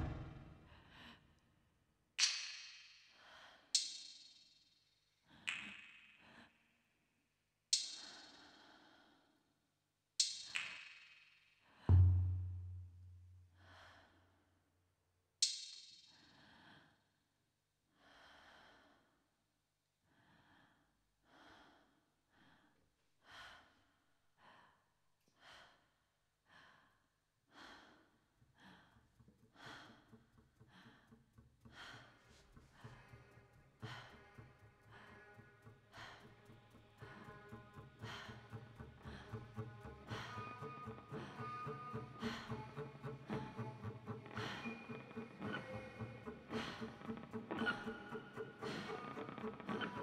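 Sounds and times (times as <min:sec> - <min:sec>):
faint rhythmic breaths: 0:03.0 - 0:04.6, 0:07.9 - 0:09.6, 0:13.5 - 0:14.6, 0:16.0 - 0:17.2, 0:17.9 - 0:19.4, 0:20.0 - 0:50.0.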